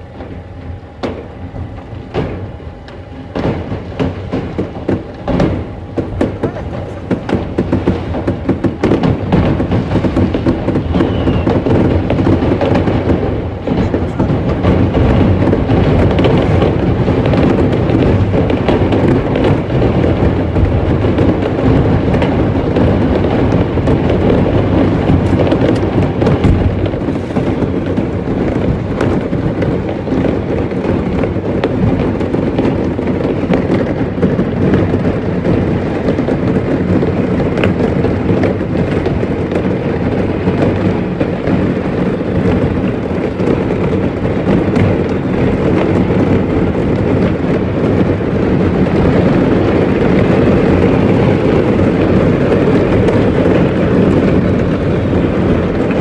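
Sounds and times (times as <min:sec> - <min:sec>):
fireworks bangs and crackling: 0:00.0 - 0:56.0.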